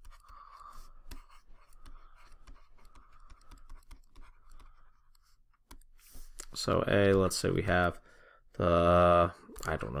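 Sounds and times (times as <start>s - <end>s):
stylus tapping and scratching: 0.0s - 7.3s.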